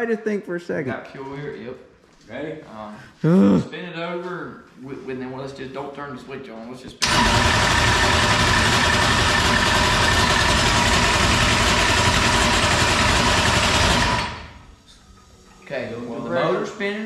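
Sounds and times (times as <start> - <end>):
starter cranking engine: 7.0 - 14.7.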